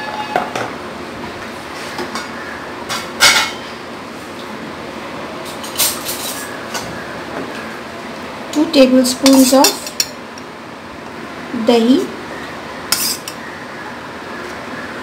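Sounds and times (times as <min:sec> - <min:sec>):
steady background noise: 0:00.0 - 0:15.0
utensils and dishes clinking: 0:02.9 - 0:03.7, 0:05.4 - 0:06.9, 0:09.2 - 0:10.2, 0:12.9 - 0:13.4.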